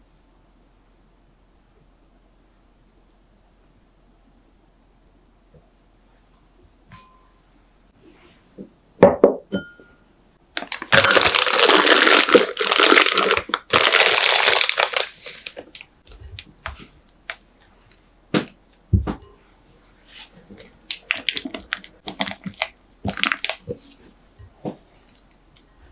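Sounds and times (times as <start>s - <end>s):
glassware knocks: 9.0s - 10.0s
plastic bag crinkling: 10.6s - 18.0s, 20.6s - 24.0s.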